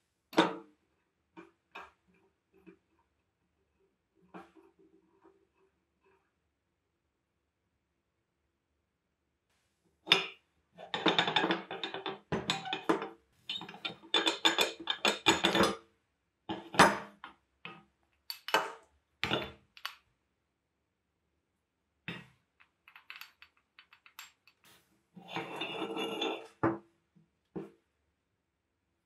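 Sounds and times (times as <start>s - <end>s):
cast-iron parts clinking and knocking: 10.1s - 15.8s, 18.2s - 20.0s, 22.1s - 26.8s.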